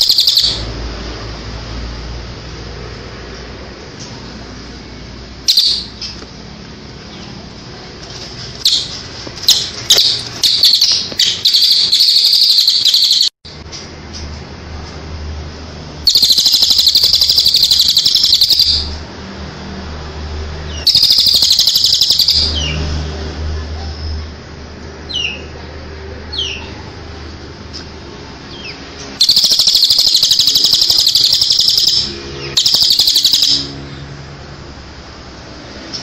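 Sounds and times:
rapid high bird trill: 0:00.0 - 0:00.8, 0:05.5 - 0:06.2, 0:08.6 - 0:13.4, 0:16.0 - 0:19.0, 0:20.7 - 0:22.8, 0:29.2 - 0:33.9.

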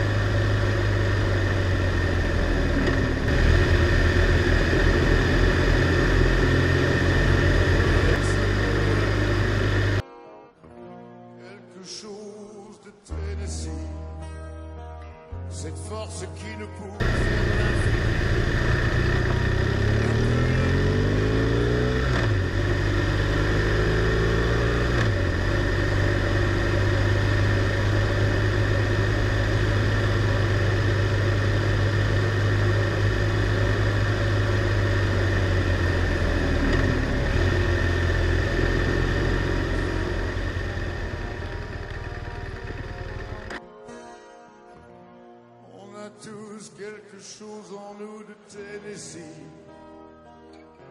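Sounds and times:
motorcycle engine accelerating: 0:00.0 - 0:10.0, 0:17.0 - 0:43.6.

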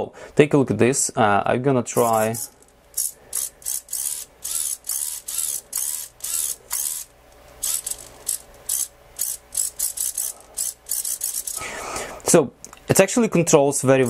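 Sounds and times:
servos whirring: 0:02.0 - 0:11.8.

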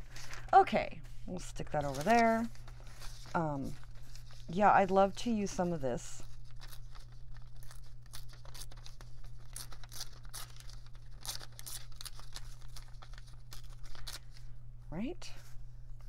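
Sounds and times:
paper tearing: 0:06.2 - 0:14.3.

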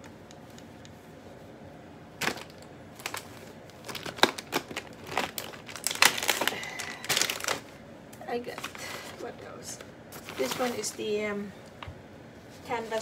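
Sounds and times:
plastic packaging crinkling: 0:02.2 - 0:11.8.

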